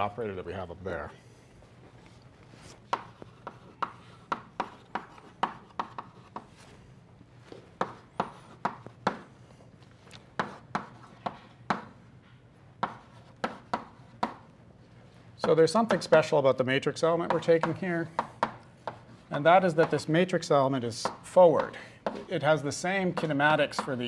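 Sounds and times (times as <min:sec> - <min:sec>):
chalk tapping and scraping on blackboard: 0:02.7 - 0:06.7, 0:07.4 - 0:09.4, 0:10.3 - 0:12.0, 0:12.8 - 0:14.5, 0:17.2 - 0:20.1, 0:21.0 - 0:22.4, 0:23.0 - 0:24.0.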